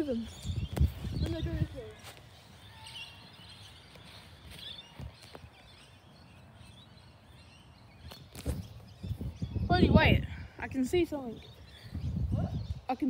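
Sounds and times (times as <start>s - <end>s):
footsteps on grass: 0.0s - 6.0s
distant bird chirps: 0.0s - 13.0s.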